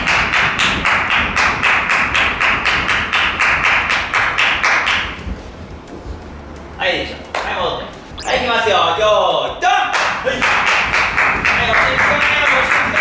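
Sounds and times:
quick hand-clapping: 0.1 - 5.1, 9.9 - 13.0.

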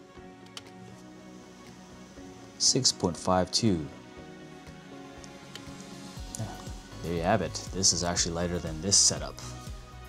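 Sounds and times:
faint background music: 0.0 - 10.0.

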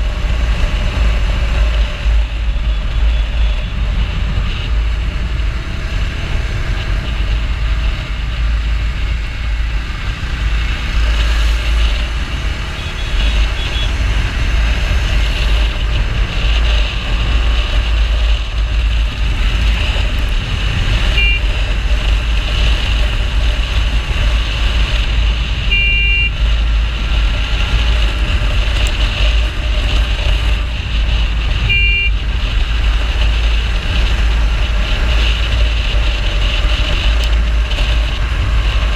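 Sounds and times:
motorcycle engine: 0.0 - 38.9
vehicle horn toots: 12.7 - 14.0, 21.0 - 21.5, 25.7 - 26.4, 31.6 - 32.2.

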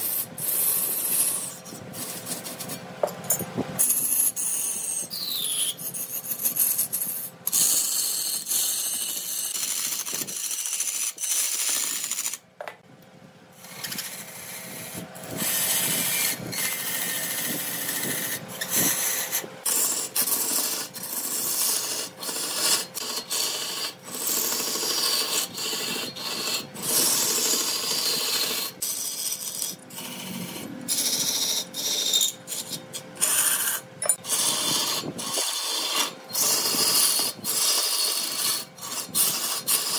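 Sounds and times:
turning tool scraping wood on lathe: 0.0 - 12.4, 13.6 - 39.9.

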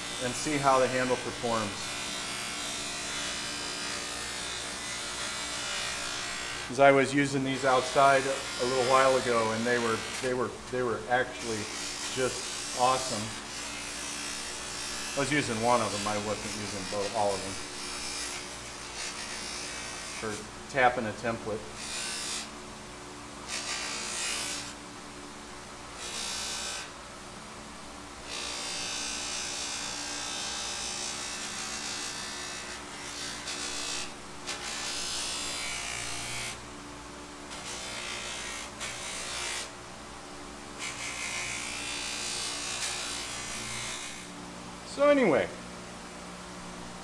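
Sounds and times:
bench grinder motor hum: 0.0 - 6.7, 7.5 - 10.4, 11.1 - 20.4, 21.8 - 22.5, 23.4 - 24.8, 26.0 - 27.0, 28.2 - 36.6, 37.5 - 39.7, 40.8 - 44.4.

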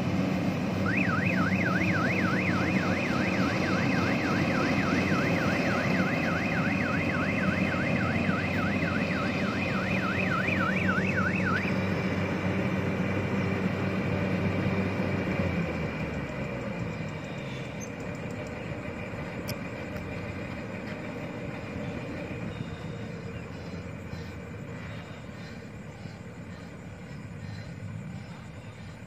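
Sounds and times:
combine harvester engine running: 0.0 - 29.0
warbling electronic warning alarm: 0.7 - 13.2.

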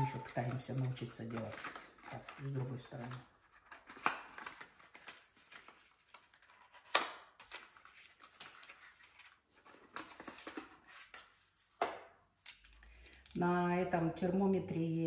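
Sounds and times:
cardboard packaging rustling: 0.0 - 11.7.

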